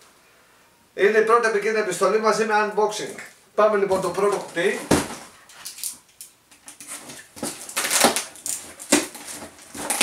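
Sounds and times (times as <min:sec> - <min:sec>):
packing tape ripping: 0:06.7 - 0:10.0
cardboard flaps scraping and tearing: 0:06.9 - 0:10.0.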